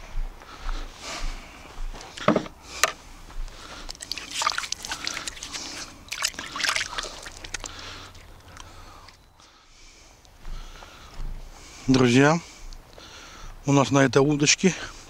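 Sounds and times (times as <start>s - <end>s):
sharp knocks and rustles: 2.0s - 3.0s
water sloshing and dripping: 3.7s - 9.2s.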